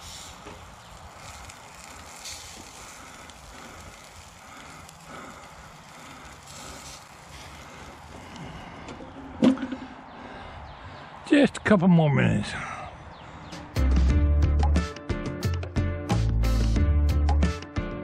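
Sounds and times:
steaks sizzling on grill: 0.0s - 8.7s.

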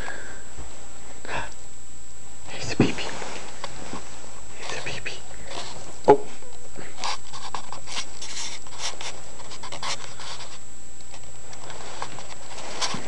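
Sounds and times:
fur rustling against camera: 2.8s - 6.4s, 7.0s - 10.6s, 11.3s - 13.0s.

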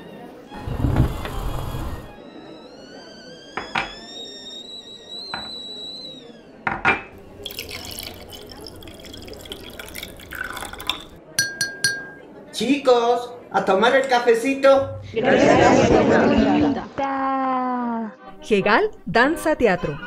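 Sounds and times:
coffee pouring into a cup: 7.2s - 11.2s
china clinking: 7.4s - 12.2s.

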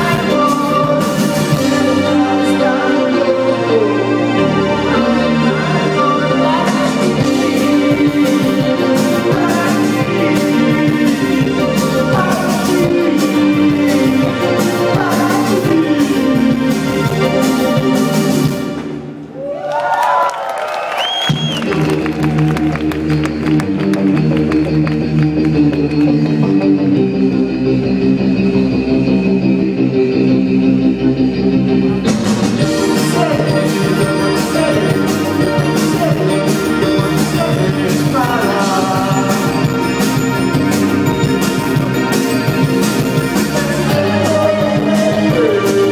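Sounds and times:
drums with cymbals: 0.0s - 2.7s, 6.4s - 19.0s, 32.1s - 45.9s
guitar: 0.0s - 19.2s, 21.2s - 45.9s
live rock band: 0.0s - 19.2s, 21.2s - 45.9s
held keyboard chord: 32.4s - 45.9s.

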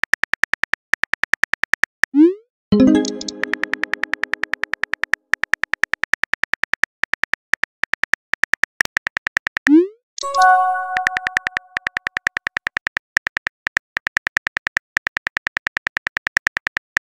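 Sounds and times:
short chime: 10.2s - 11.5s
phone keyboard clicking: 11.0s - 17.0s.

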